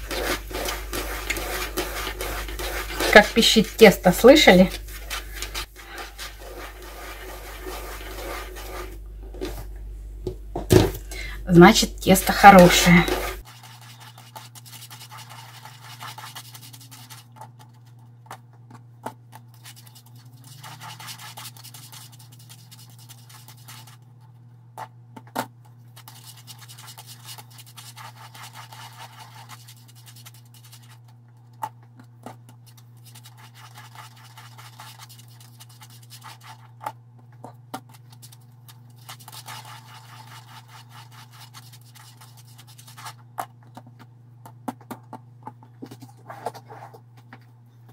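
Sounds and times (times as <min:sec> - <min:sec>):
dough clicks and squeaks: 0:00.0 - 0:09.0, 0:12.3 - 0:47.9
hands rubbing and squishing dough: 0:00.0 - 0:09.7, 0:11.6 - 0:24.9, 0:25.8 - 0:44.6
steady low hum: 0:00.0 - 0:13.8.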